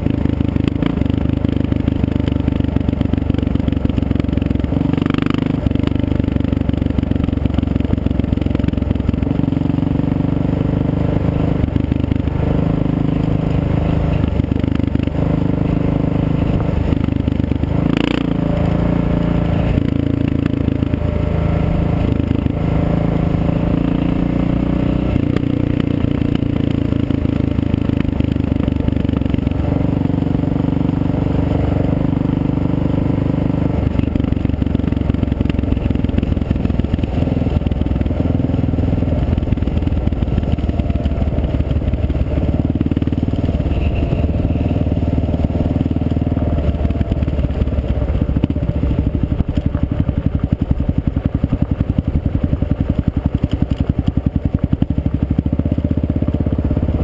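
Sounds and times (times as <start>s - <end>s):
motorcycle engine running: 0.0s - 57.0s
tyres rumbling on gravel: 33.7s - 57.0s.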